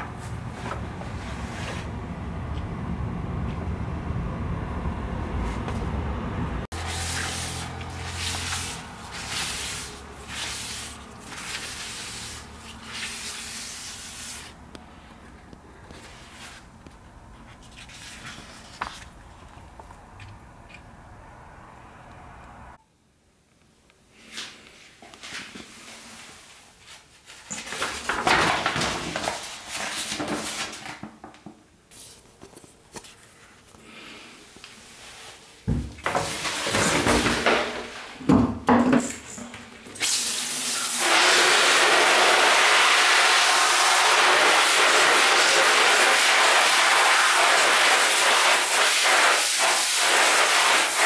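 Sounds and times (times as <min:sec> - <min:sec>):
map sheet rustling and crinkling: 0:06.8 - 0:14.5, 0:17.4 - 0:20.0, 0:24.2 - 0:31.1, 0:31.9 - 0:33.8
paper towel wiping wet map: 0:06.8 - 0:14.6, 0:40.8 - 0:51.0.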